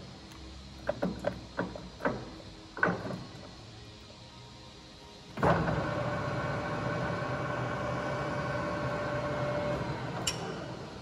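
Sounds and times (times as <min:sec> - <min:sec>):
lathe motor whining: 0:05.4 - 0:11.0.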